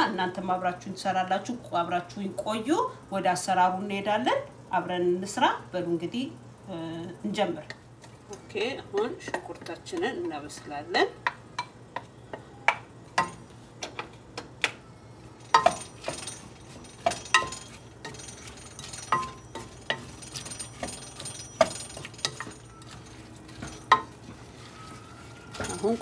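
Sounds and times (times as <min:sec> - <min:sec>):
faint sizzle: 0:22.7 - 0:26.0.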